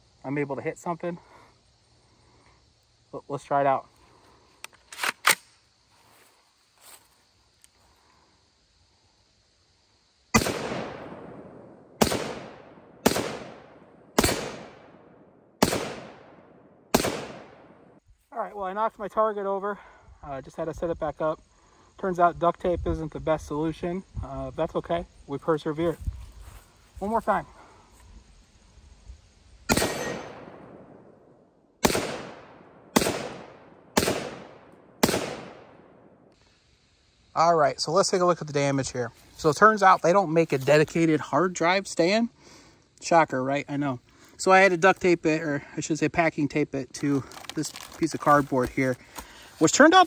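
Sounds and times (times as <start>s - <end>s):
rifle shots echoing: 10.3s - 17.9s, 29.7s - 31.2s, 31.8s - 36.2s.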